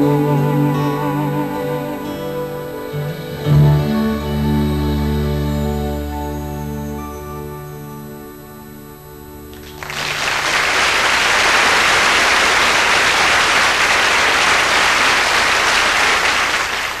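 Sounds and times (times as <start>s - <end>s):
audience applause: 9.5s - 17.0s.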